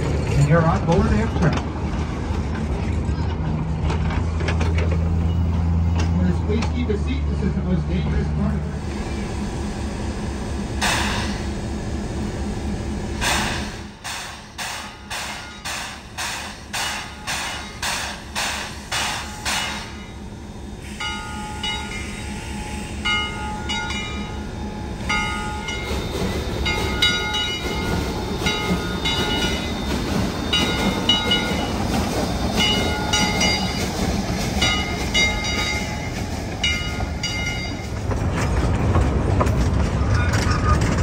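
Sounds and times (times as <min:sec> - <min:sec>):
train wheels rumbling: 0:00.0 - 0:41.0
steam locomotive chuffing: 0:05.1 - 0:41.0
locomotive bell ringing: 0:14.8 - 0:15.8, 0:18.9 - 0:34.0, 0:34.6 - 0:38.0.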